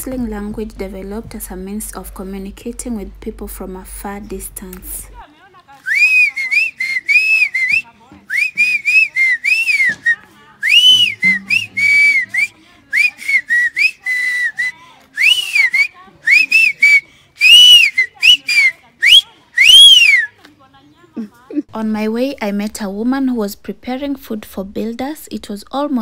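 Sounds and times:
boy whistling: 0:05.9 - 0:20.4.

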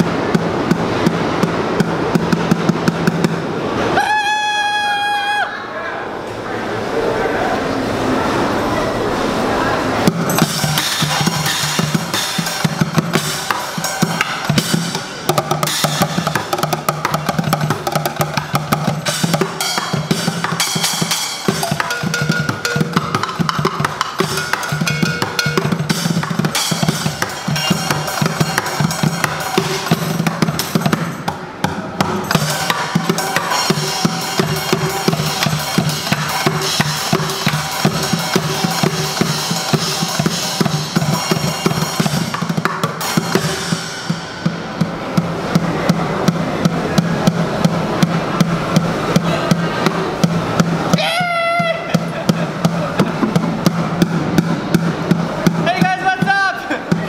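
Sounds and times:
drumming on plastic buckets: 0:00.0 - 0:03.7, 0:10.1 - 0:57.0
drum kit: 0:00.0 - 0:03.9, 0:10.0 - 0:57.0
cymbal hits: 0:10.0 - 0:50.9.

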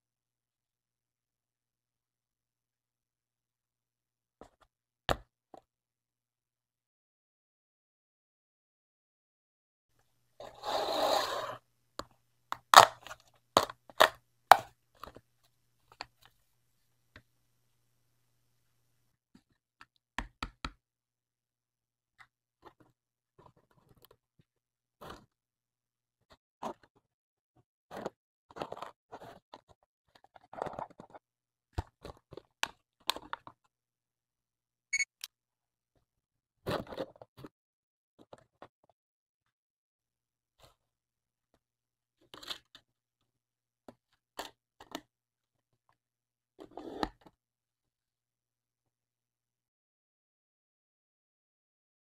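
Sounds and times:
plastic and cardboard scrapes: 0:10.4 - 0:11.6.

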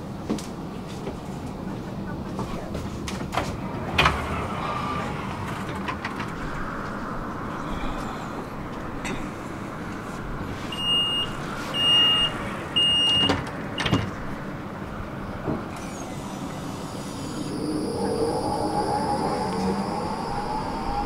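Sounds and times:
tram doors shutting thud: 0:02.7 - 0:06.5.

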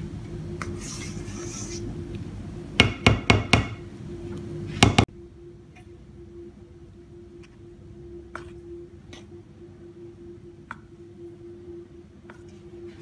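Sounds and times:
low hum: 0:00.0 - 0:13.0
wooden spatula knocking on pan: 0:02.8 - 0:03.8.

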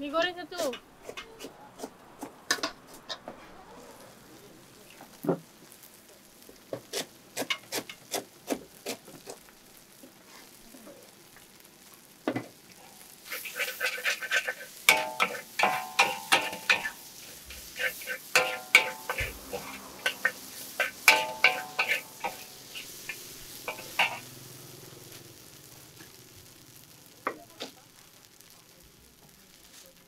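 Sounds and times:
metal spatula clanging in wok: 0:13.5 - 0:24.3.

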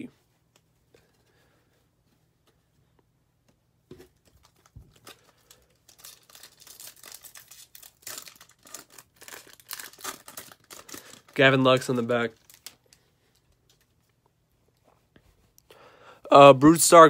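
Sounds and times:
foil wrapper tearing and crinkling: 0:04.2 - 0:13.0.

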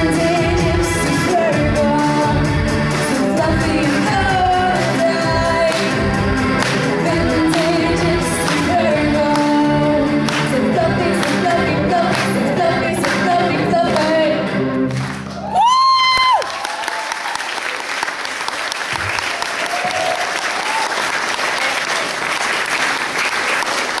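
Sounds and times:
live pop-rock band playing: 0:00.0 - 0:15.2
audience applause: 0:15.0 - 0:24.0.

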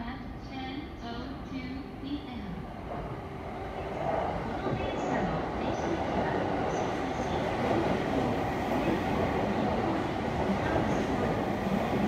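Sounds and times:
train wheels rumbling on rails: 0:02.8 - 0:12.0.

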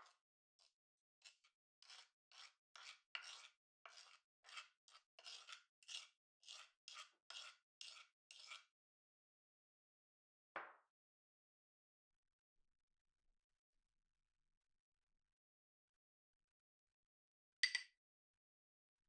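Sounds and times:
spoon scraping sugar: 0:00.0 - 0:08.7.

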